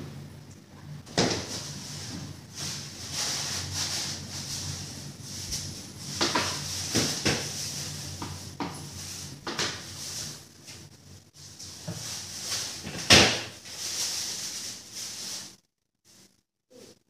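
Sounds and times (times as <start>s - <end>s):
steady low hum: 0.0s - 15.5s.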